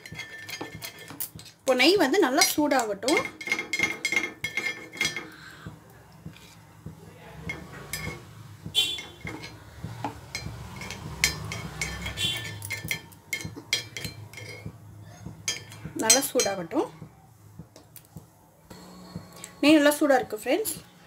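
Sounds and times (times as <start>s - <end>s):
metal spoon clinking on pan: 0.0s - 5.4s, 7.4s - 8.2s, 8.9s - 14.7s, 15.4s - 16.8s.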